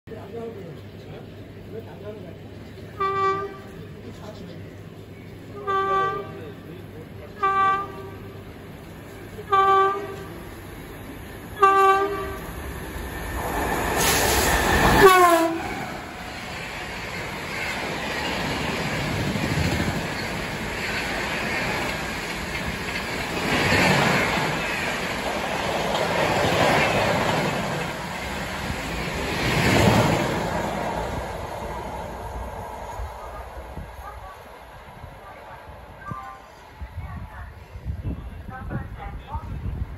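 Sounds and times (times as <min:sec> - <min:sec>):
train horn blasts: 0:03.0 - 0:03.8, 0:05.6 - 0:06.4, 0:07.4 - 0:08.3, 0:09.5 - 0:10.4, 0:11.6 - 0:12.5, 0:15.0 - 0:15.7
locomotive rushing past: 0:03.4 - 0:36.0
coaches clattering over rails: 0:07.8 - 0:33.1.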